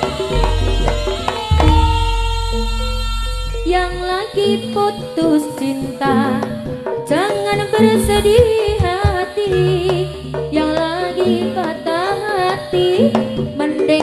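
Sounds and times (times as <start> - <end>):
hand drum strokes: 0.0 - 4.7, 7.7 - 9.5
ringing gong notes: 0.1 - 4.8
deep low hum: 0.4 - 4.2.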